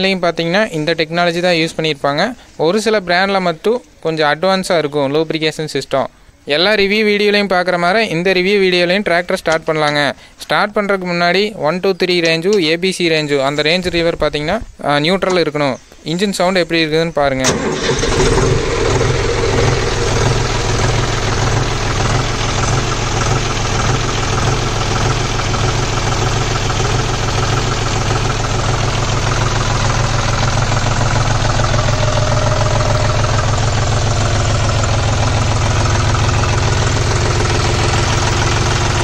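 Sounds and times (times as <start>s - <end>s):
diesel tractor engine idling: 17.4s - 39.0s.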